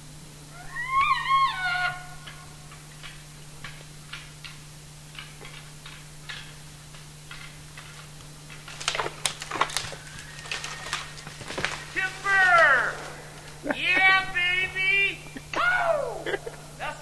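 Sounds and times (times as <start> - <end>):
low hum: 0.0 - 17.0
dry twigs snapping: 3.0 - 13.7.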